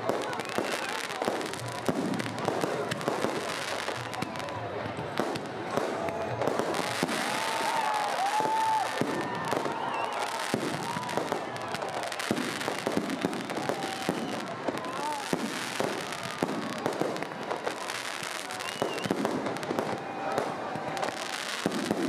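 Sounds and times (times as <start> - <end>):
crowd voices: 0.0 - 22.0
fireworks bangs and crackles: 0.0 - 22.0.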